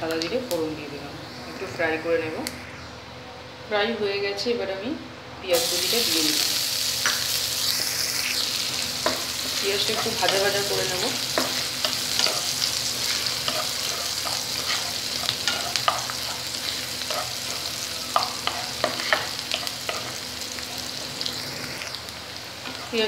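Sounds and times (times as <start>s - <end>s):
onions sizzling in hot oil: 5.5s - 23.0s
spatula scraping a pan: 9.0s - 20.9s.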